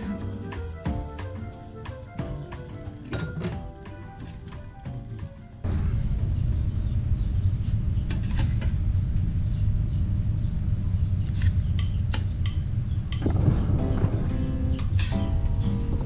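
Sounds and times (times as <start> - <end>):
low rumble: 5.6 - 11.8, 12.4 - 16.0.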